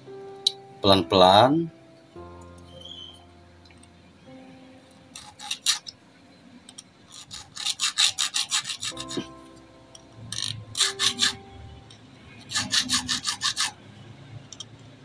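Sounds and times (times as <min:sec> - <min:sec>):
hand file rasping on metal: 0:05.2 - 0:05.8, 0:07.1 - 0:09.3, 0:10.8 - 0:11.4, 0:12.4 - 0:13.7.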